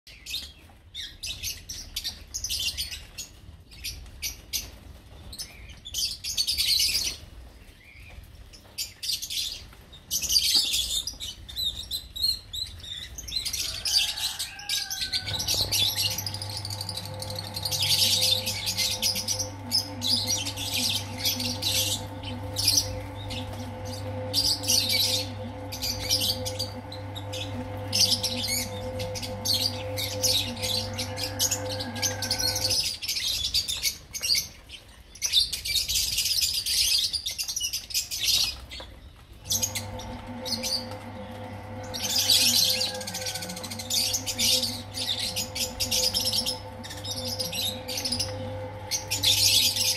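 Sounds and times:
lovebirds chirping and twittering: 0.1 - 49.9
steady low hum: 14.7 - 33.1, 39.4 - 49.9.

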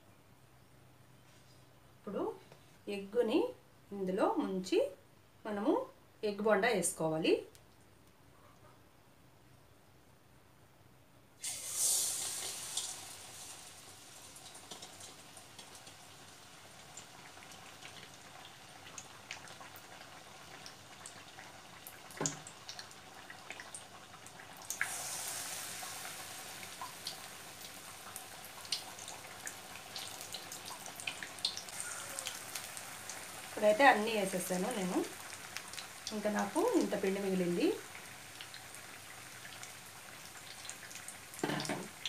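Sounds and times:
food sizzling in frying oil: 11.4 - 42.0.

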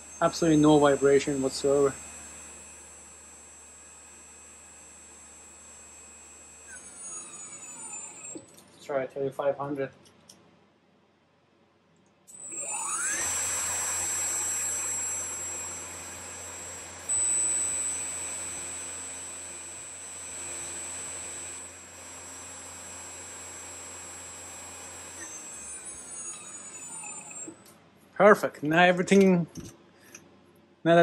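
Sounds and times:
mill spindle high whine: 0.0 - 8.6, 12.3 - 27.7.

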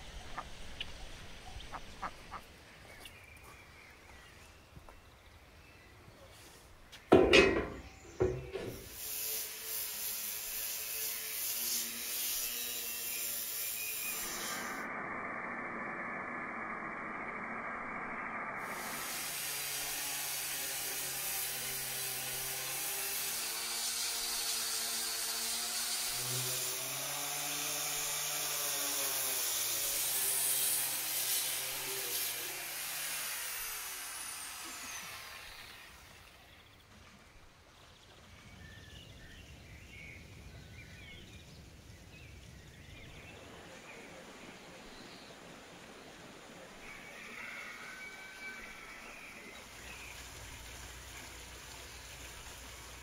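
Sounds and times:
power sander on wood: 8.1 - 15.2, 18.6 - 36.3.

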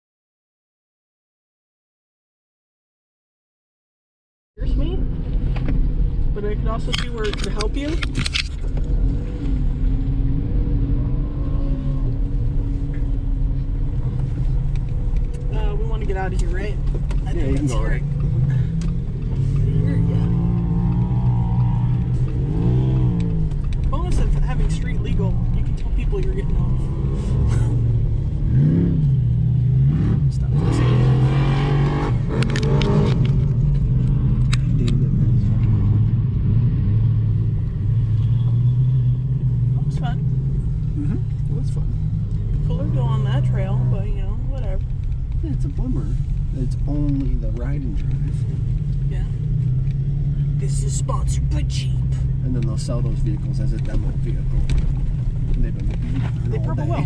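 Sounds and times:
car engine driving over dirt: 5.1 - 39.1, 51.4 - 57.0.

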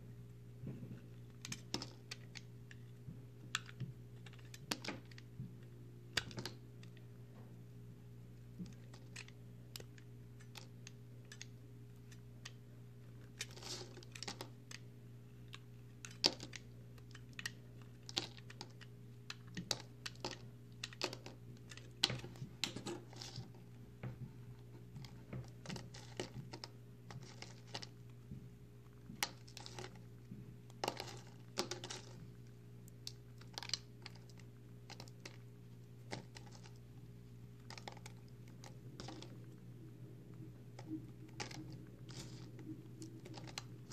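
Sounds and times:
low steady hum: 0.0 - 43.9
soap crunching and crackling: 8.5 - 23.8, 28.8 - 39.6.

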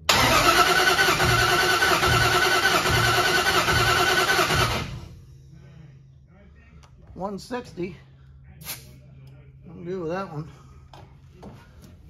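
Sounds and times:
engine starter cranking: 0.1 - 5.1.

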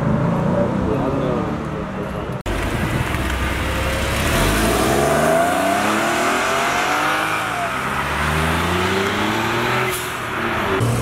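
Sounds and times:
car engine accelerating past: 3.6 - 11.0.

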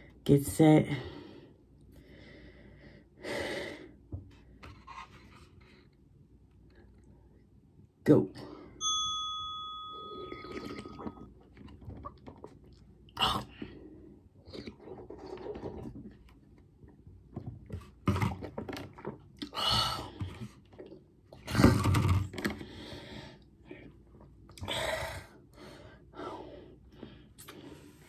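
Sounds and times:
non-word vocal sounds and breaths: 0.0 - 8.8, 22.4 - 28.0
person gulping: 10.1 - 13.8.

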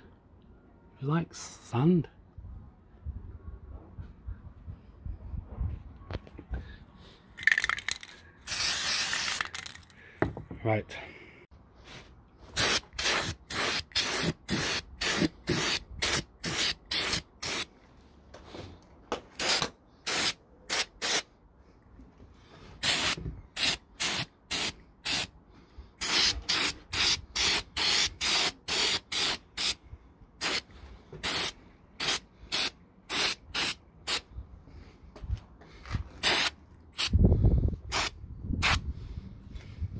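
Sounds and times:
spray paint can hissing: 7.4 - 9.8, 12.6 - 17.7, 19.4 - 21.3, 22.8 - 25.3, 26.0 - 29.8, 30.4 - 34.2, 36.2 - 37.2, 37.9 - 38.8.

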